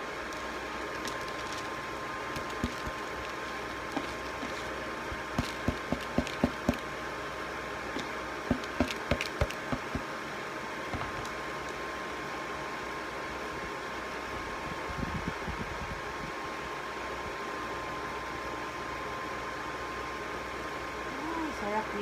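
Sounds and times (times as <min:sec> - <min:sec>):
steady background hum: 0:00.0 - 0:22.0
plastic bowl knocking on pot rim: 0:08.5 - 0:10.1.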